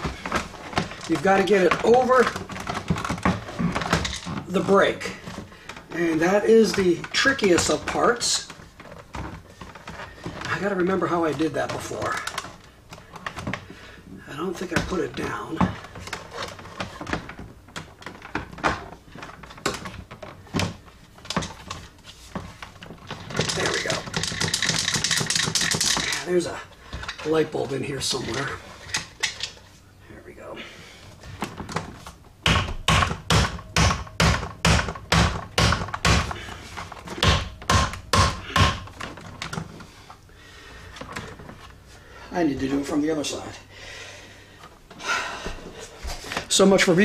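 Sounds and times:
plastic console clunking and clicking: 0:00.0 - 0:13.8, 0:14.6 - 0:26.2.

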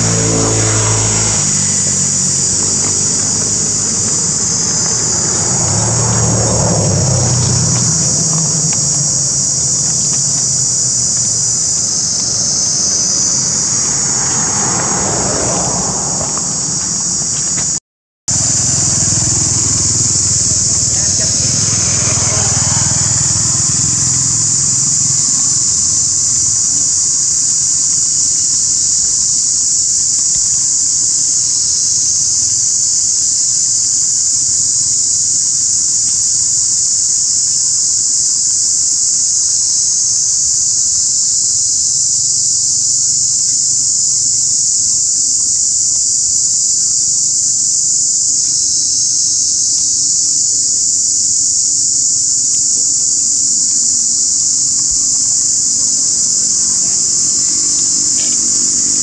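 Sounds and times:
low rumble: 0:00.0 - 0:17.6, 0:18.3 - 0:26.6
high-pitched insect chorus: 0:00.0 - 0:59.0.

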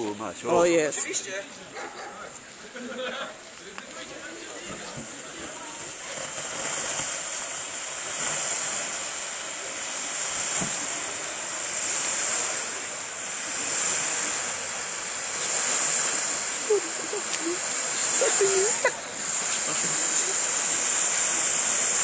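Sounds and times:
smoke canisters hissing: 0:00.0 - 0:22.0.

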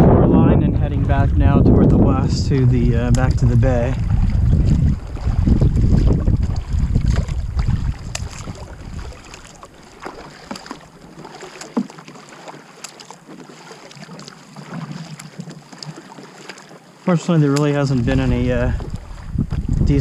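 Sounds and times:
wind rumbling on microphone: 0:00.0 - 0:10.5, 0:17.7 - 0:20.0
kayak paddle splashing water: 0:01.0 - 0:20.0.

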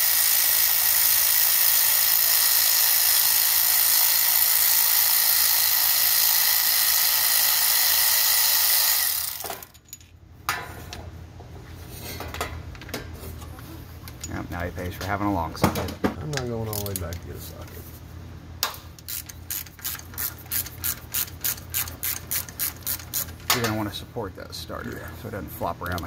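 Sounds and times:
power ratchet running: 0:00.0 - 0:09.7, 0:19.0 - 0:23.4.

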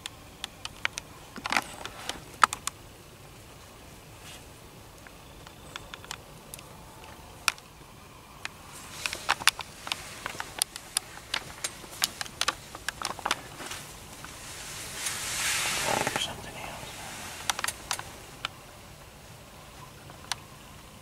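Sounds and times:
sharp clicks and ticks: 0:08.4 - 0:13.6, 0:17.4 - 0:18.6.

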